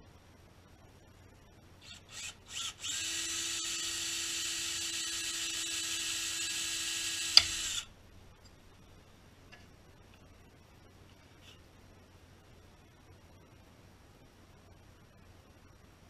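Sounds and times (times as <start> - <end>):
cordless drill whining: 1.8 - 7.9.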